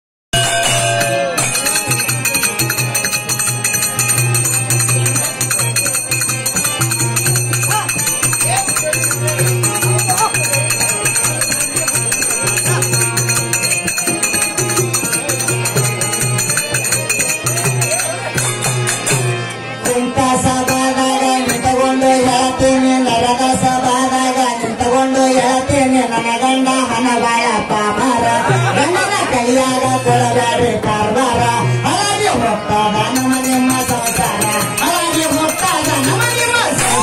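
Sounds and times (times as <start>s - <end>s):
metallic jingling: 33.2s - 37.0s.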